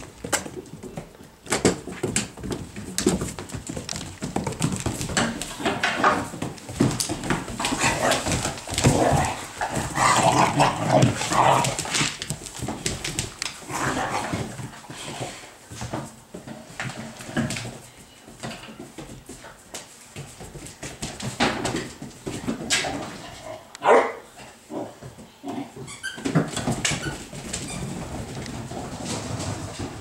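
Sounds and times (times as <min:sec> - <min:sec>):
claws clicking on wooden floor: 0:00.0 - 0:14.3
puppies barking: 0:23.8 - 0:24.2.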